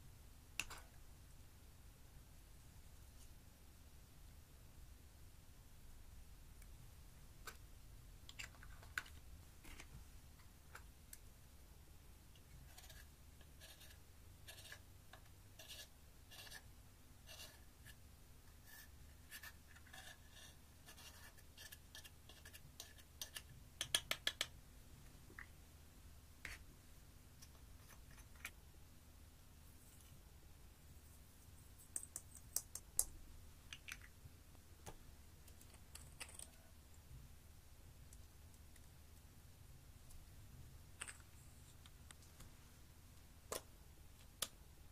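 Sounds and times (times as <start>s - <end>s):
spatula scraping and tapping: 19.3s - 24.5s.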